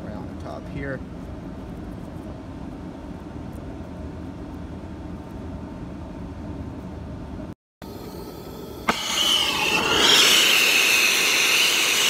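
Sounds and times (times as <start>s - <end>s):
low rumbling background noise: 0.0s - 8.8s.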